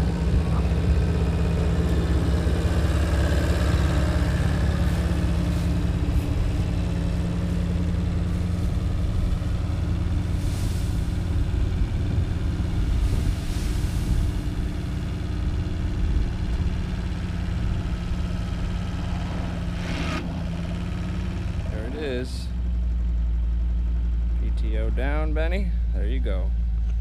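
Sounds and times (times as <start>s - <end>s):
truck engine humming: 0.0s - 27.0s.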